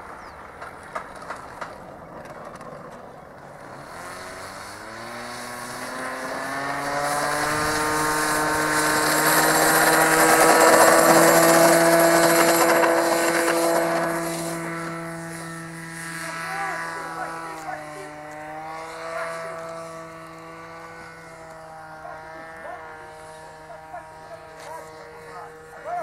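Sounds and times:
model airplane engine at full throttle: 0.0 - 26.0.

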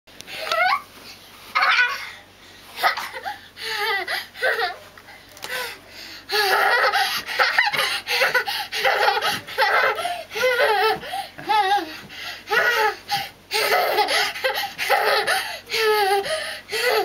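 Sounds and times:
toddler laughing: 6.3 - 11.9, 12.5 - 17.0.

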